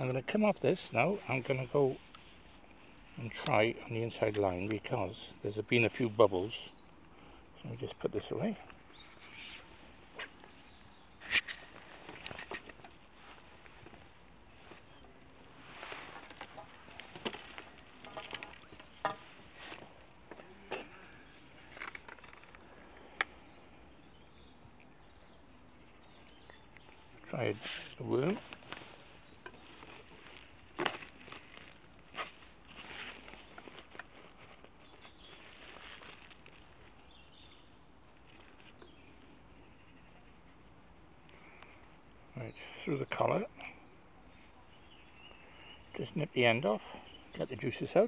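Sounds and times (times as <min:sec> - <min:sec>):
faint outdoor hiss: 0:00.0 - 0:48.0
fishing tackle clicks and rustles: 0:21.4 - 0:23.4.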